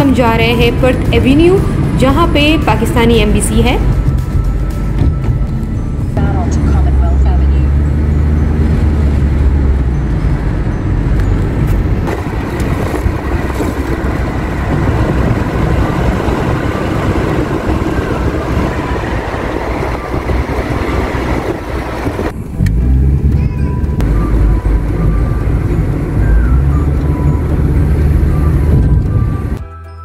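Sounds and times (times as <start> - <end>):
car low rumble: 0.0 - 29.6
wind and tyre noise: 0.0 - 29.6.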